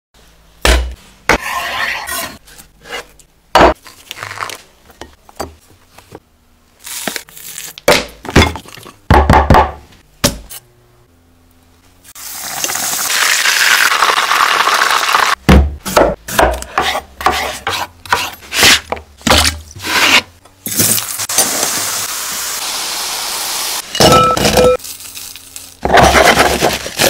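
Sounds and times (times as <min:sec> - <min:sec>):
fish sizzling in frying oil: 0:12.2 - 0:15.4.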